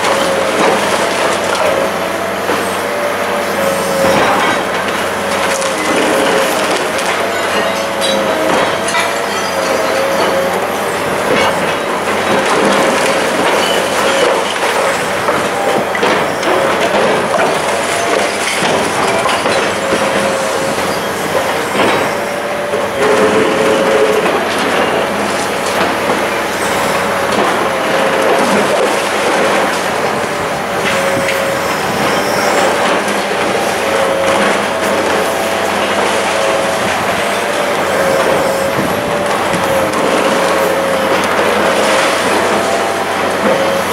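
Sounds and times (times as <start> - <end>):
concrete crunching and rubble falling: 4.0 - 43.9
mid-pitched machine tone: 30.4 - 43.9.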